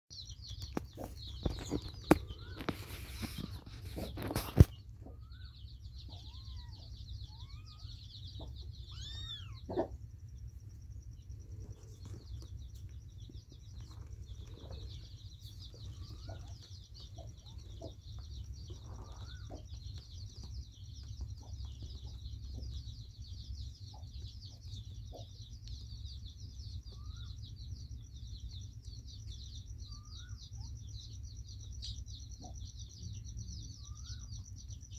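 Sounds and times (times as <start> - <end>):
birds chirping: 0.1 - 34.9
kittens mewing: 5.1 - 10.1
rustling: 11.4 - 22.1.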